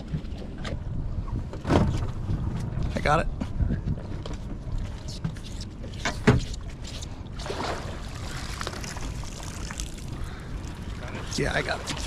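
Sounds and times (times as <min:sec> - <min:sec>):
water splashing and dripping: 0:06.4 - 0:12.0.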